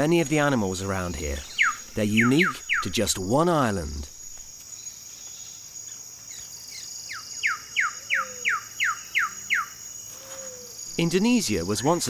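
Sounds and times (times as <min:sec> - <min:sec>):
insects droning: 0:00.0 - 0:12.0
bird whistled notes: 0:01.5 - 0:02.9.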